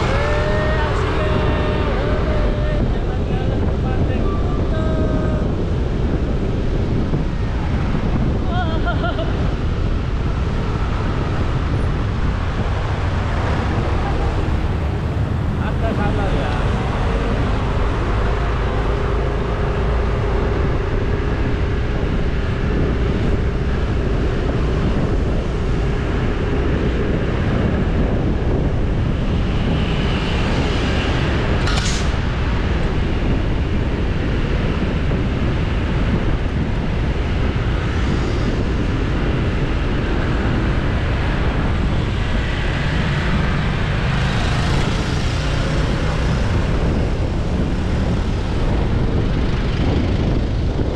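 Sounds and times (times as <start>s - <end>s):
scooter engine and road noise: 0.0s - 50.9s
wind rush: 0.0s - 50.9s.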